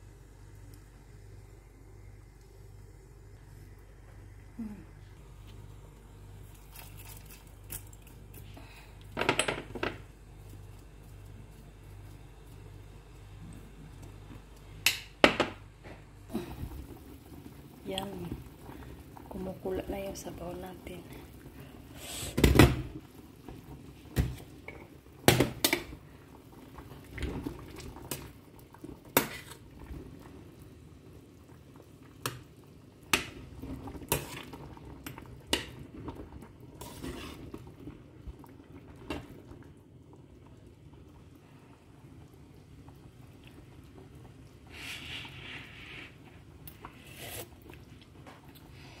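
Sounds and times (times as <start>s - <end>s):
soup bubbling: 16.3s - 49.0s.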